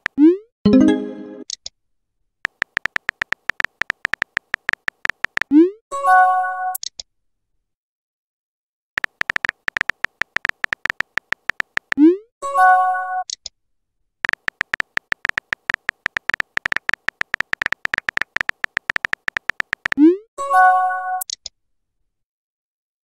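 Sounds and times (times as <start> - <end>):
phone keyboard typing clicks: 0.0 - 0.2, 2.4 - 5.5, 9.0 - 12.0, 14.2 - 20.0.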